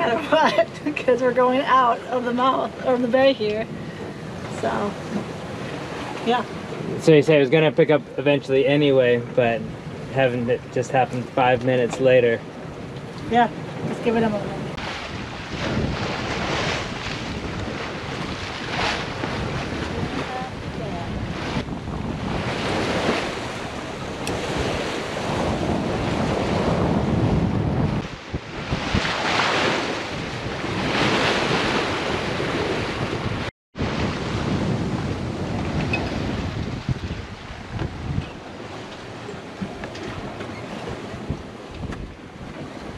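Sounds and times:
water rushing past hull: 0:00.0 - 0:42.9
waves: 0:00.0 - 0:42.9
wind buffeting microphone: 0:00.0 - 0:42.9.

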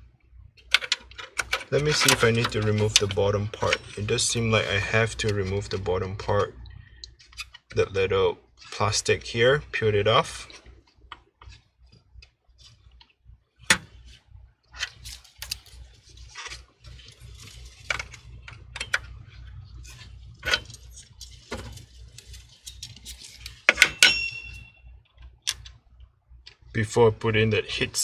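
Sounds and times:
metallic clink: 0:23.7 - 0:24.8.

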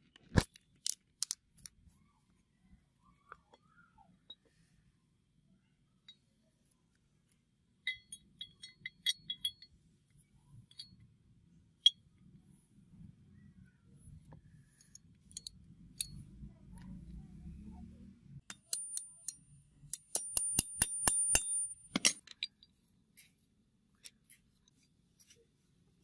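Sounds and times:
hammer tapping metal pin: 0:18.5 - 0:22.6.

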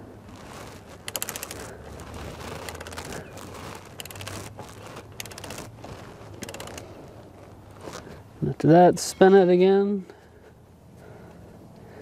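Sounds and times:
ratchet wrench clicking: 0:01.0 - 0:05.7, 0:06.4 - 0:06.9.

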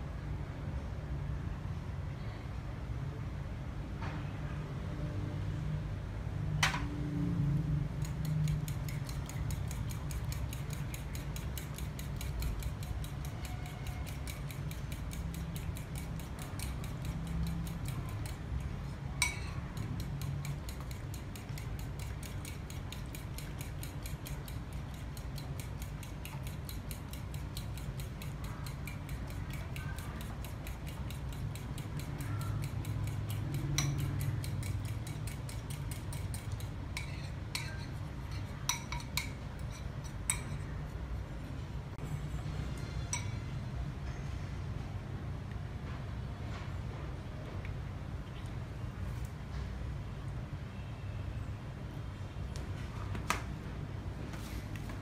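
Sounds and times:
spoon clinking against bowl: 0:08.0 - 0:40.8, 0:42.8 - 0:43.5.

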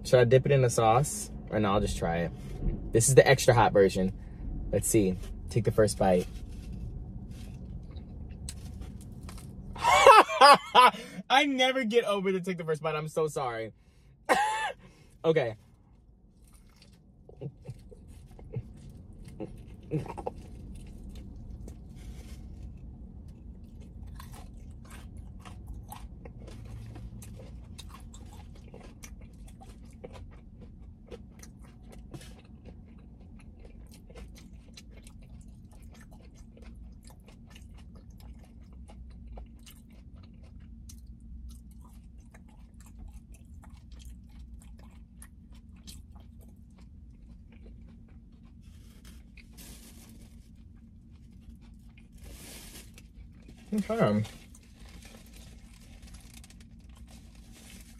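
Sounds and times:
low steady hum: 0:00.0 - 0:57.9
crunching bite: 0:16.4 - 0:49.6
wet chewing with smacks: 0:16.4 - 0:53.7.

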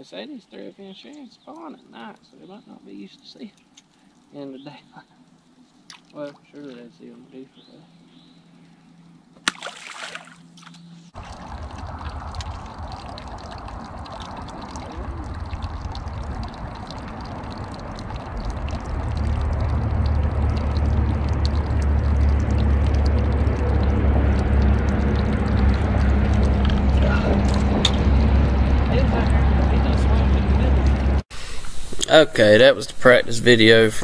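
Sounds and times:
water trickling and sloshing: 0:01.1 - 0:31.2
steady low rumble: 0:10.9 - 0:33.6.

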